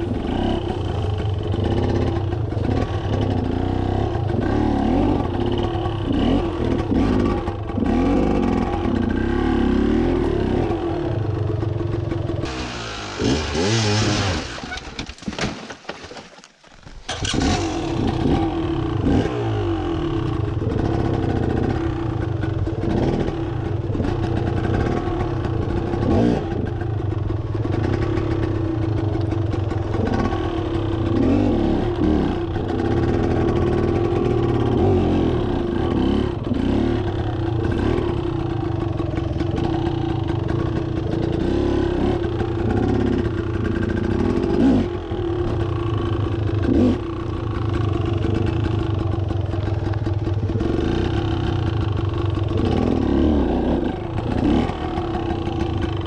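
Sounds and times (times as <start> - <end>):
motorcycle engine revving: 0.0 - 14.8, 17.1 - 56.0.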